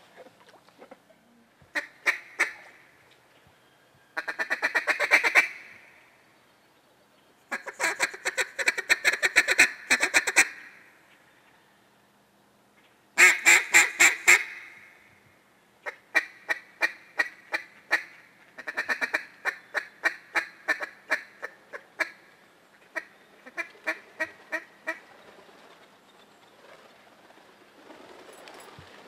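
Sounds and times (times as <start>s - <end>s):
duck quacking: 1.7s - 2.8s, 4.2s - 5.7s, 7.5s - 10.7s, 15.8s - 22.2s.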